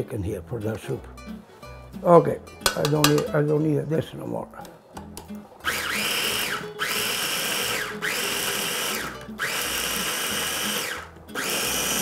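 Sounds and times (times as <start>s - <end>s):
kitchen appliance motor whining: 5.6s - 12.0s.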